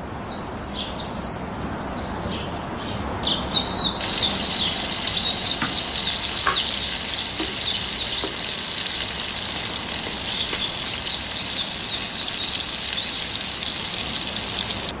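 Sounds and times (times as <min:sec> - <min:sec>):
vegetables sizzling in hot oil: 0:04.0 - 0:15.0.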